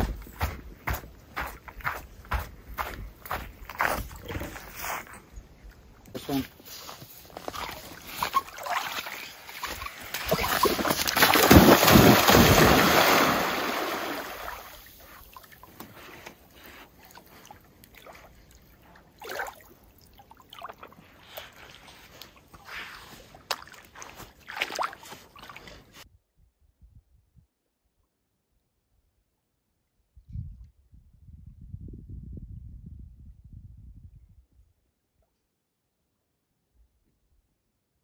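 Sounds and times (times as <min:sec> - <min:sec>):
water sloshing as dog swims: 0:07.0 - 0:26.0
dog splashing into water: 0:07.5 - 0:15.6, 0:23.4 - 0:25.8.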